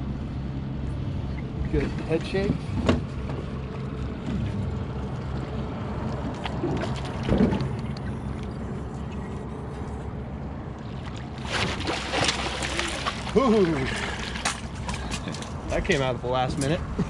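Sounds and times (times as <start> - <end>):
boat motor humming: 0.0 - 17.0
water splashing: 5.9 - 8.0, 10.8 - 15.6.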